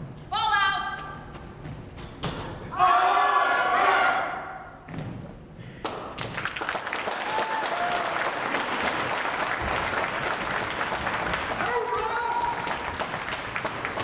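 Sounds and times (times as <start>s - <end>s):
audience applauding: 5.8s - 14.0s.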